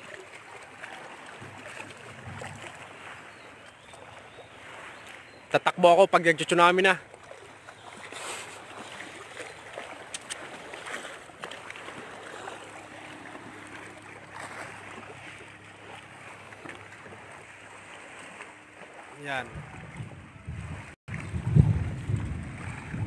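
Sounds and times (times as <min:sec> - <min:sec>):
wind on microphone: 0:01.4 - 0:03.0, 0:19.4 - 0:23.0.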